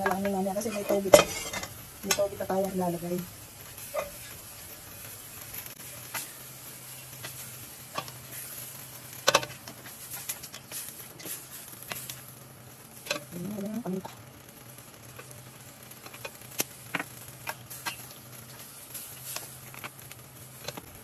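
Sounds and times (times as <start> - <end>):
utensil scraping and clinking pan: 0.0 - 2.3
vegetables sizzling in pan: 0.0 - 21.0.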